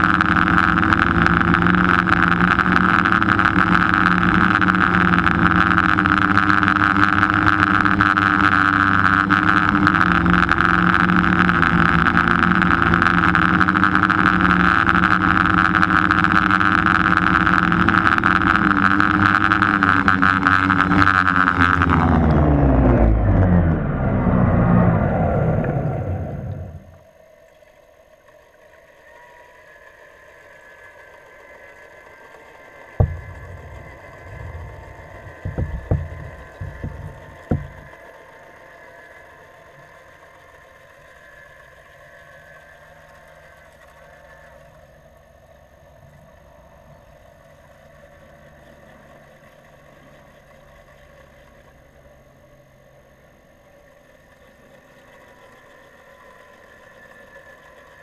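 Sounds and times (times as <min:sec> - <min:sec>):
muffled underwater hum: 0:00.0 - 0:58.0
heavy low thumps: 0:33.0 - 0:37.9
sharp knocks: 0:33.0 - 0:38.0.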